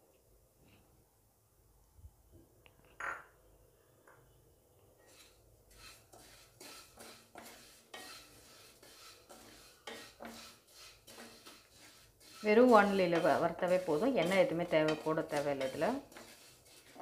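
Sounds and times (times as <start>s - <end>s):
wooden spatula scraping metal pan: 5.0s - 17.0s.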